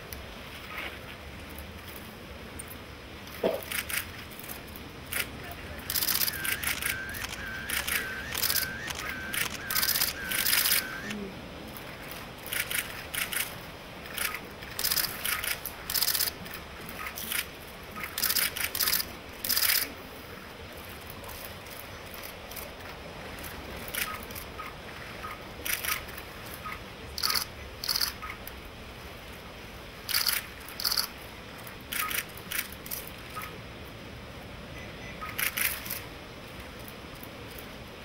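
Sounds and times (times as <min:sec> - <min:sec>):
camera shutters clicking: 0:03.6 - 0:04.1, 0:05.1 - 0:11.2, 0:12.5 - 0:16.4, 0:18.1 - 0:19.9, 0:30.1 - 0:31.1, 0:31.9 - 0:33.0, 0:35.4 - 0:36.0.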